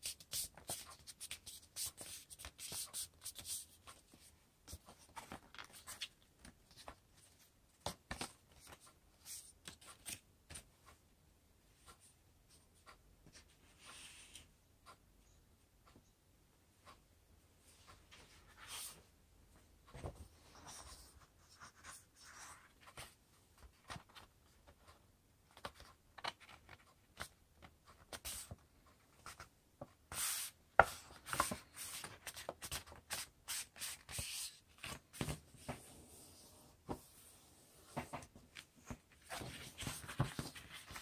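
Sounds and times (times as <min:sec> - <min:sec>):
paper rustling and creasing: 0:38.0 - 0:41.0.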